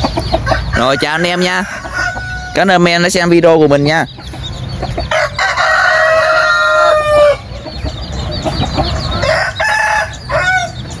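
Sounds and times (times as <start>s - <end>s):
birds clucking and chirping: 0.0s - 11.0s
roosters crowing: 0.0s - 11.0s.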